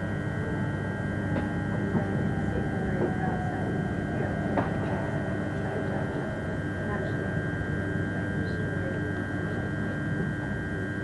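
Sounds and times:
train motor whining hum: 0:00.0 - 0:10.8
wheels rumbling on track: 0:01.3 - 0:07.8.

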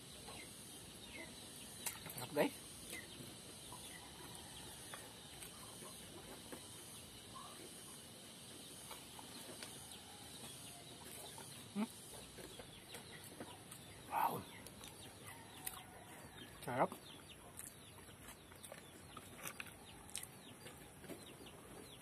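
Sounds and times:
man chewing: 0:13.2 - 0:15.9, 0:17.4 - 0:20.8.

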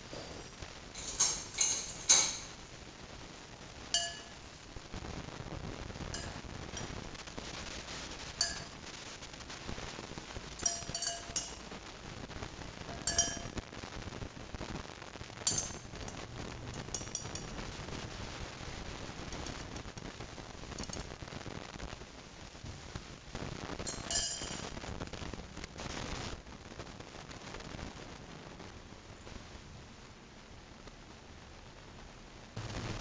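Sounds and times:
utensil clinking on a bowl: 0:01.0 - 0:02.5, 0:04.0 - 0:04.4, 0:06.2 - 0:06.9, 0:08.4 - 0:08.7, 0:10.6 - 0:11.6, 0:12.9 - 0:13.6, 0:15.5 - 0:15.8, 0:23.8 - 0:24.6.

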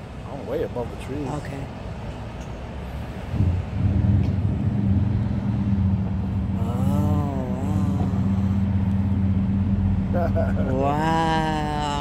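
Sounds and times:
vehicle engine running: 0:03.1 - 0:12.0
wavering voice-like sound: 0:06.6 - 0:08.8.

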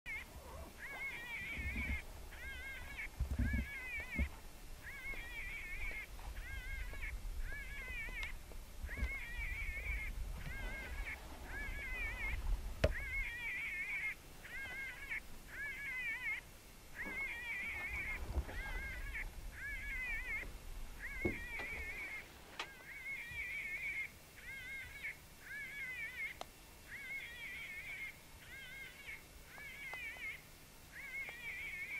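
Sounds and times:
electronic animal distress call: 0:00.1 - 0:31.9
low rumble: 0:01.5 - 0:13.4.

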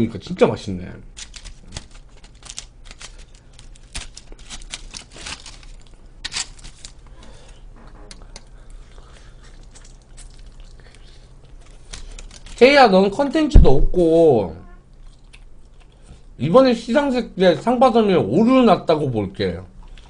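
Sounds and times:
foil crinkling: 0:01.1 - 0:07.6, 0:09.5 - 0:12.8.

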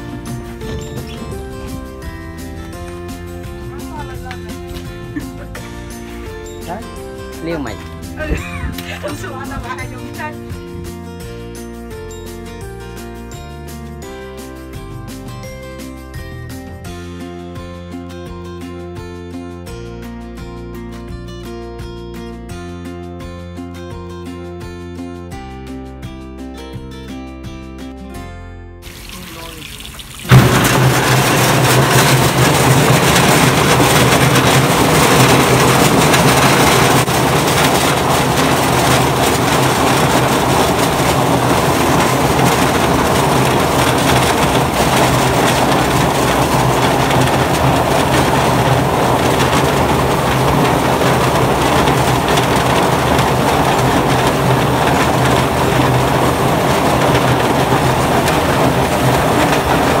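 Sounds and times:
low motor hum: 0:00.0 - 0:11.0, 0:30.2 - 1:00.0
golf balls rattling in water: 0:28.9 - 1:00.0.

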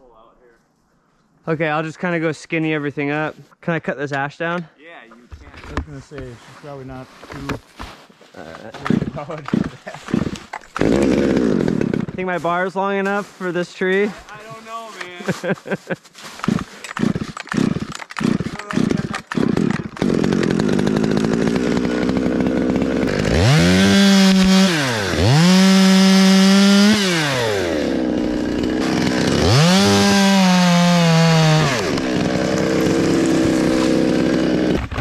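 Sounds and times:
chainsaw revving: 0:08.7 - 0:12.2, 0:16.2 - 0:35.0.

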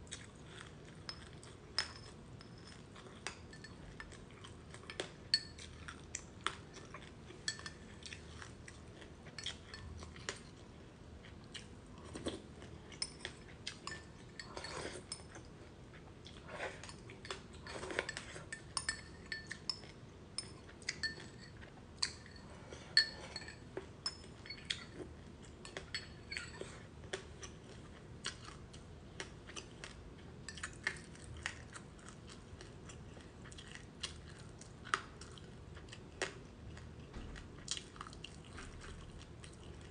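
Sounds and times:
crunchy chewing: 0:26.6 - 0:39.9.

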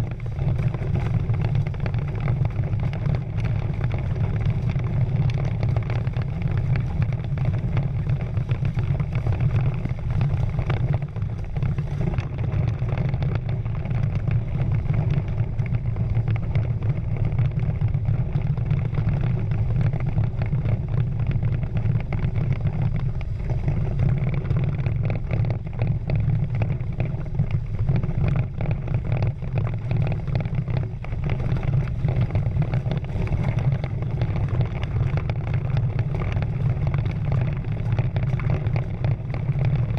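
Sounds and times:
rushing water: 0:00.0 - 0:39.9
wind: 0:00.0 - 0:39.9.

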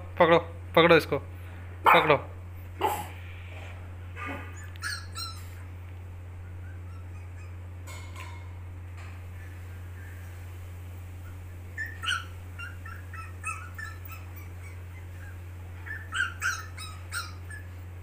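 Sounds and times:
steady low hum: 0:00.0 - 0:18.0
dog whimpering and yipping: 0:04.2 - 0:05.7, 0:06.5 - 0:07.7, 0:11.2 - 0:17.9.

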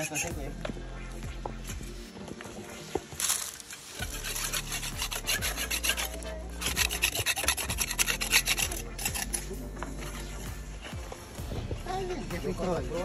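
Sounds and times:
paintbrush scrubbing masonry: 0:00.0 - 0:00.4, 0:02.6 - 0:11.2.

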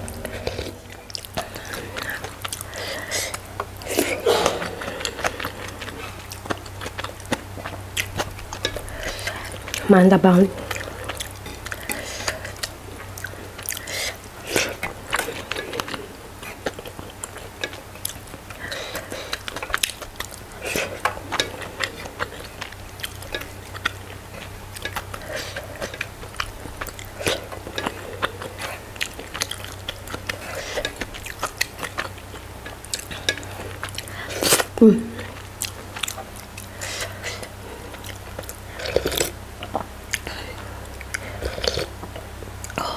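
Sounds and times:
low hum: 0:00.0 - 0:30.5
person chewing with lip smacks: 0:01.0 - 0:09.9, 0:10.6 - 0:42.9.

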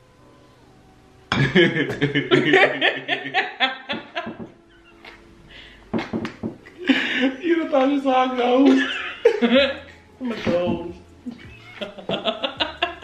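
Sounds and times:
people laughing loudly: 0:01.4 - 0:04.5, 0:08.6 - 0:09.8, 0:11.3 - 0:13.0.

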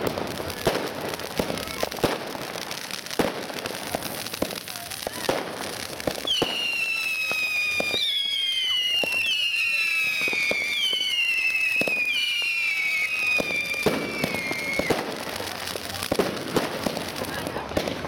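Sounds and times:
fireworks crackling: 0:00.0 - 0:18.0
fireworks popping: 0:00.0 - 0:18.0
fireworks whistling: 0:00.0 - 0:18.0.

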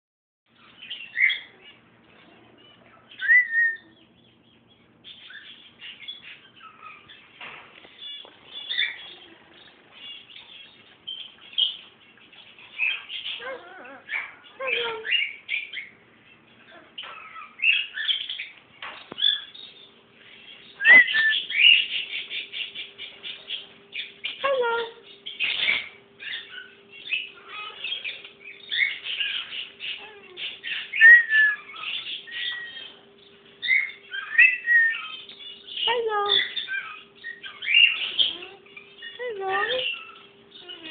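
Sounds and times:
faint steady hum: 0:00.5 - 0:40.9
parrot chirping and squawking: 0:00.6 - 0:01.9, 0:02.6 - 0:04.0, 0:04.8 - 0:40.9
parrot chattering and whistling: 0:03.1 - 0:04.0, 0:20.8 - 0:23.0, 0:24.0 - 0:33.0, 0:33.6 - 0:40.9
parrot wavering call: 0:20.8 - 0:21.8.

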